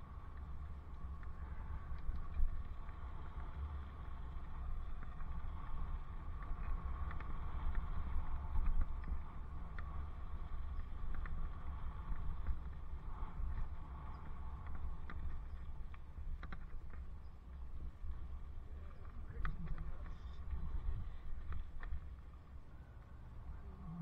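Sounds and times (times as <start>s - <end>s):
light ticks: 0.0s - 23.2s
bicycle riding noise: 0.0s - 24.0s
wind rumble on microphone: 0.0s - 24.0s.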